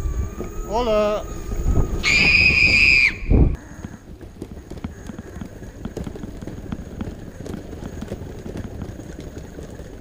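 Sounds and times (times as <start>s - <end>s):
high whistle-like tone sliding down: 0.0s - 3.5s
wheels clattering over paving stones: 3.6s - 10.0s.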